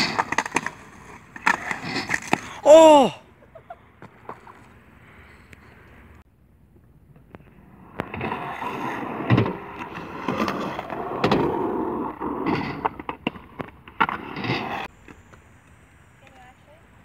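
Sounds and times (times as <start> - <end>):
skateboard clacking: 0.0 - 2.6
skateboard wheels rolling: 0.0 - 16.7.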